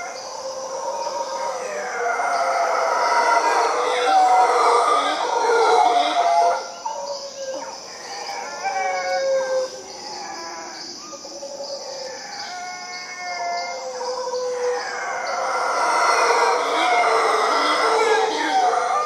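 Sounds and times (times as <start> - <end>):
high-pitched background chorus: 0.0 - 8.2, 14.0 - 19.0
howler monkeys howling: 0.0 - 19.0.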